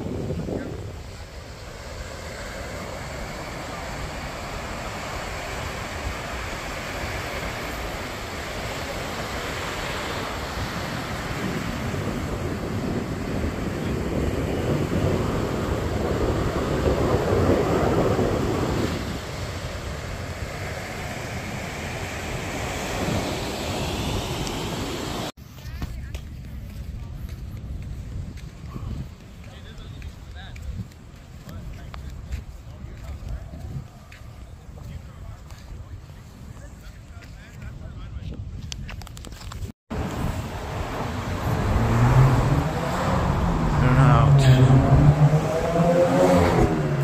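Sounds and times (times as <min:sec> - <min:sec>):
surf washing on beach: 0:00.0 - 0:25.4, 0:39.9 - 0:47.0
wind buffeting microphone: 0:00.0 - 0:47.0.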